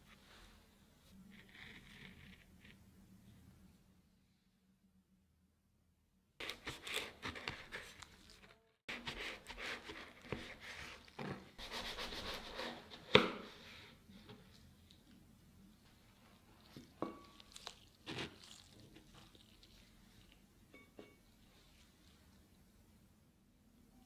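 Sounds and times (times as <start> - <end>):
knife crunching through pastry: 6.4 - 11.2, 16.3 - 20.5.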